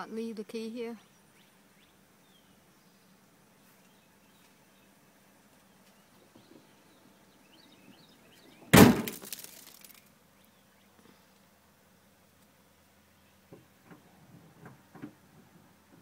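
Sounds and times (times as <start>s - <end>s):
loud crash: 8.8s - 9.5s.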